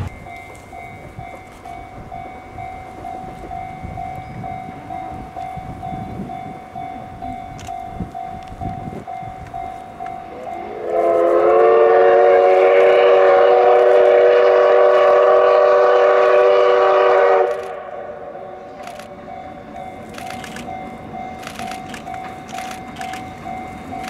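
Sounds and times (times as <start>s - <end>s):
steam locomotive whistle blast: 10.3s - 18.8s.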